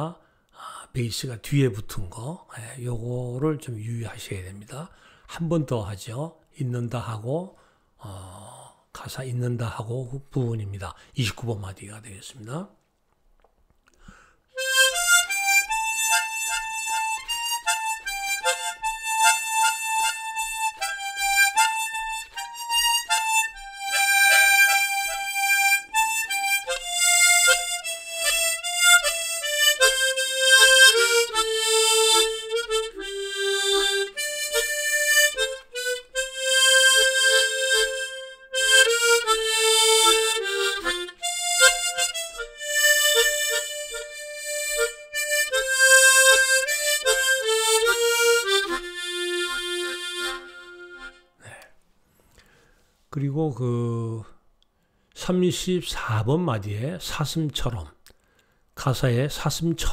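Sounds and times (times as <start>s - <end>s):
slow harmonica melody: 14.1s - 51.6s.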